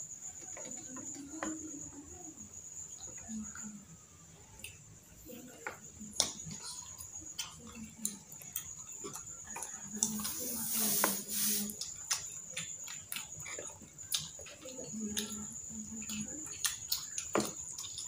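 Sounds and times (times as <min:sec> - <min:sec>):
chewing: 0:05.6 - 0:18.0.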